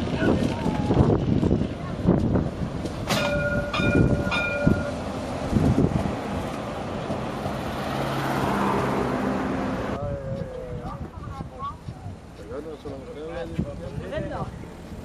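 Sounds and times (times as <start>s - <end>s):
tram rolling past: 0.0s - 15.0s.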